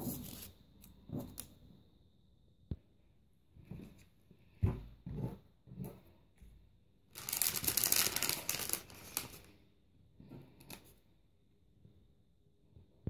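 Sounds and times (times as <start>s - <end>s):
paper and plastic rustling: 7.2s - 9.5s.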